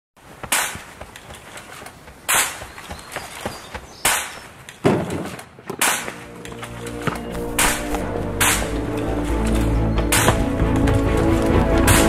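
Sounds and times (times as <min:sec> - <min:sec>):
sharp cracks: 0:00.4 - 0:03.0, 0:04.0 - 0:06.4, 0:07.4 - 0:08.9.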